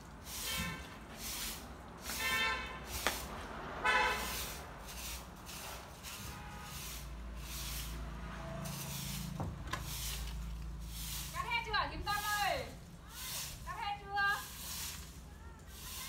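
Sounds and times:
broom sweeping tiles: 0.0 - 16.0
low engine hum: 7.0 - 13.0.

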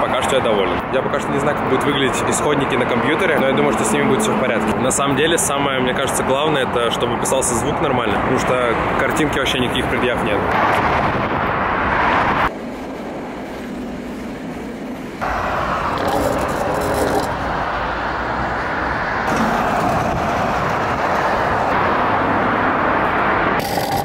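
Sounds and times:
scooter wheels rolling on asphalt: 12.2 - 24.0.

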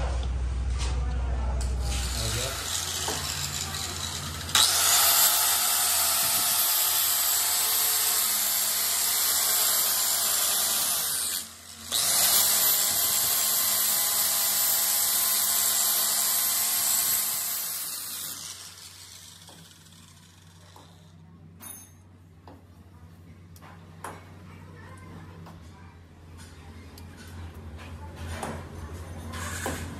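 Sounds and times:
angle grinder grinding steel: 1.8 - 21.0.

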